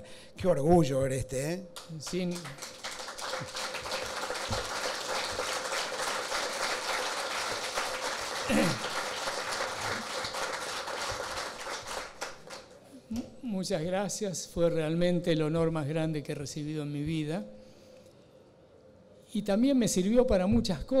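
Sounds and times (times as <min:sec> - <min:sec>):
audience applauding: 0:01.8 - 0:12.8.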